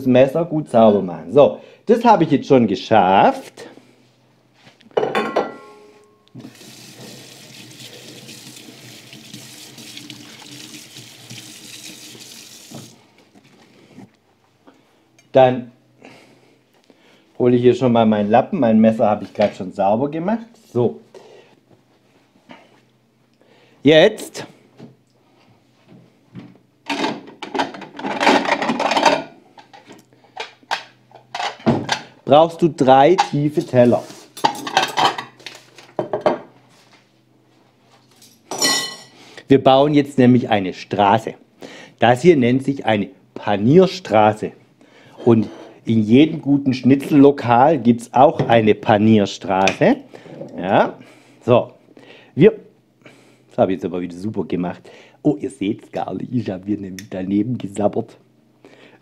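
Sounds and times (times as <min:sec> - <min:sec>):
plates clattering: 0:05.0 - 0:06.0
tap running into sink: 0:08.2 - 0:13.0.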